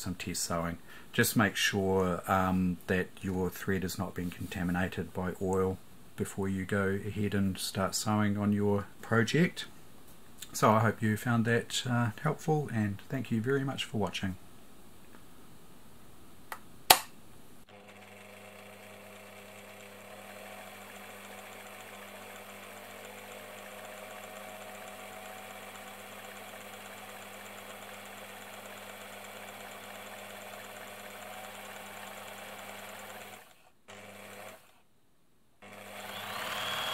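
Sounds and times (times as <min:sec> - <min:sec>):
sewing machine running hum: 0:17.7 - 0:34.8, 0:35.6 - 0:36.9.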